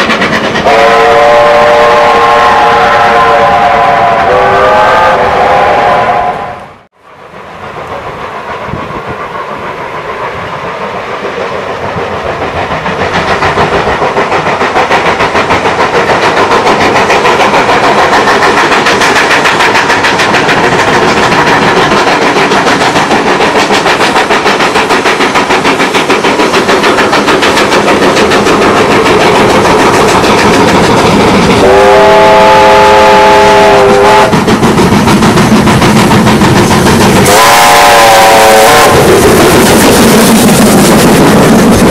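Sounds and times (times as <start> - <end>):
steam locomotive exhaust beats: 0.0 - 41.9
steam locomotive whistle: 0.6 - 6.9, 31.6 - 34.5, 37.2 - 39.3.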